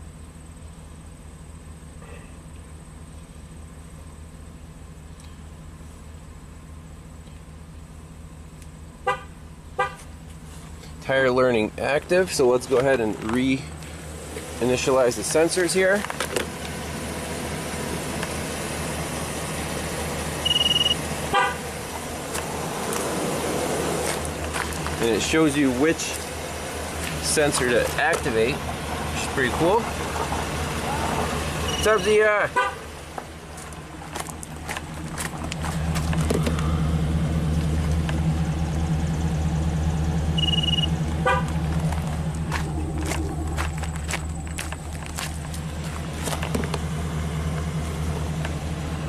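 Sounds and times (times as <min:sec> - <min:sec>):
truck engine idling: 0:00.0 - 0:49.0
car horn chirp: 0:09.0 - 0:10.1, 0:20.4 - 0:21.7, 0:31.6 - 0:32.9, 0:40.3 - 0:41.7
high electronic beep: 0:20.4 - 0:21.0, 0:31.6 - 0:32.0, 0:40.3 - 0:41.0
footsteps on gravel: 0:23.8 - 0:28.4, 0:33.1 - 0:36.8, 0:41.1 - 0:47.6
horn chirp: 0:40.3 - 0:41.7.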